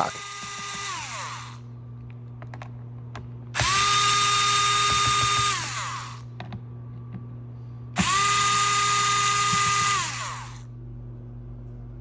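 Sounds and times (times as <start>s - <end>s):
cordless drill motor whine: 0.0s - 1.7s, 3.5s - 6.3s, 7.9s - 10.7s.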